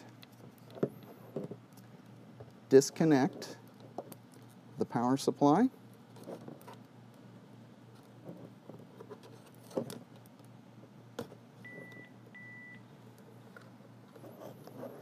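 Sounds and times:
high-pitched phone beeps: 0:11.7 - 0:12.8.

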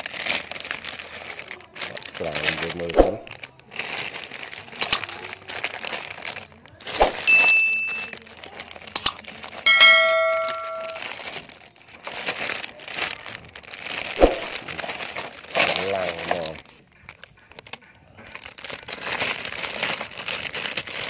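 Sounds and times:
plastic bag crinkling: 0:00.0 - 0:21.0
sharp handling clicks: 0:04.8 - 0:05.0, 0:09.0 - 0:09.2
loud bell-like ring: 0:07.3 - 0:08.1, 0:09.7 - 0:11.1
short high ding: 0:07.3 - 0:08.1, 0:09.0 - 0:11.0.

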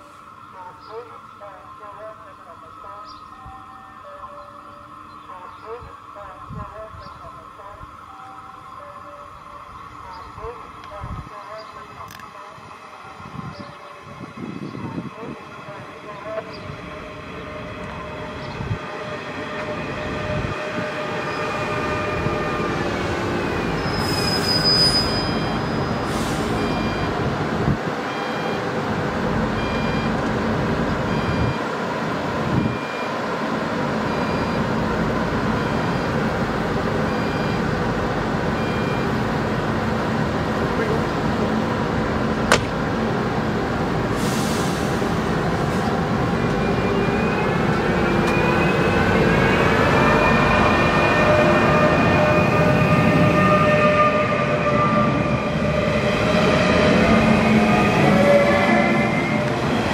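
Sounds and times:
short beeps: 0:31.1 - 0:31.6
sharp click: 0:42.5 - 0:42.8.

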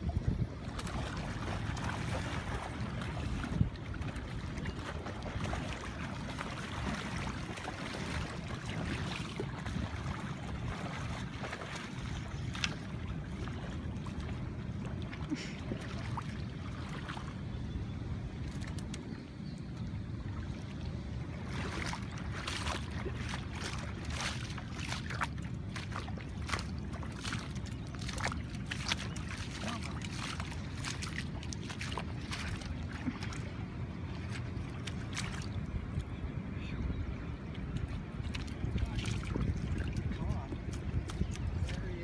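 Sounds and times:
wading through river water: 0:00.0 - 0:42.0
short sharp splashes: 0:00.6 - 0:14.4, 0:21.4 - 0:33.5, 0:34.2 - 0:35.6.

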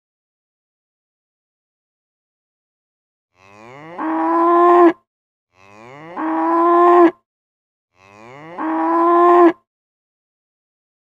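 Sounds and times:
cow mooing: 0:03.4 - 0:05.0, 0:05.6 - 0:07.2, 0:08.0 - 0:09.6.

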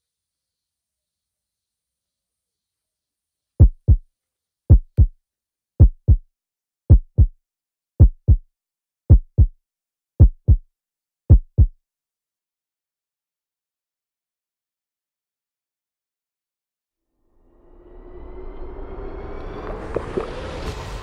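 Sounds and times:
heartbeat double thumps: 0:03.6 - 0:04.0, 0:04.7 - 0:05.1, 0:05.8 - 0:06.2, 0:06.9 - 0:07.4, 0:08.0 - 0:08.4, 0:09.1 - 0:09.6, 0:10.2 - 0:10.6, 0:11.3 - 0:11.8.

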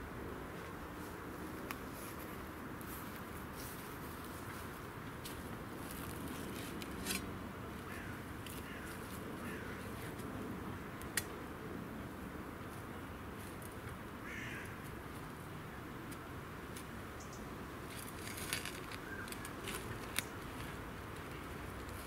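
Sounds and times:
birds calling: 0:19.0 - 0:20.4.

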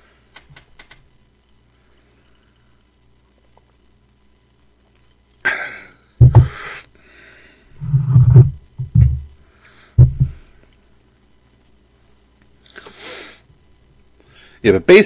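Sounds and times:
man exhaling: 0:05.4 - 0:07.6
low throaty sounds: 0:07.8 - 0:09.3
person swallowing: 0:07.8 - 0:09.3.

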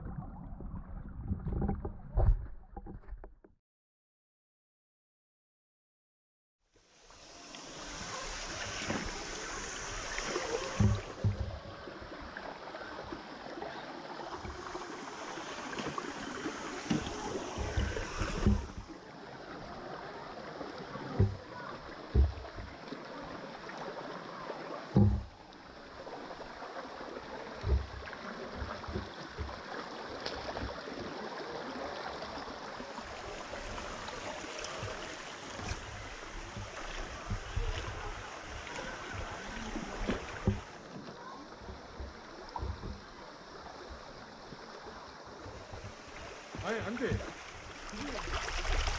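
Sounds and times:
stream rushing over rocks: 0:07.0 - 0:48.9
water splashing around wheels: 0:27.4 - 0:40.9, 0:43.2 - 0:48.9.

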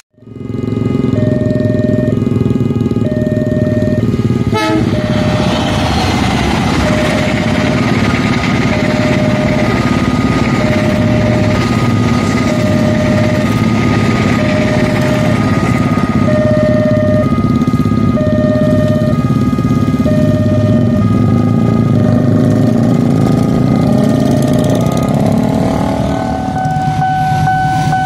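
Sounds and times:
level crossing alarm pulses: 0:00.2 - 0:28.0
train carriages rolling over rails: 0:05.1 - 0:16.2.

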